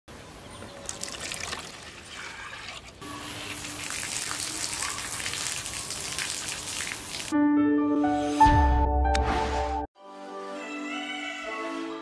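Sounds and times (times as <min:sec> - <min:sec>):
water pump jet spraying: 0:00.9 - 0:07.4.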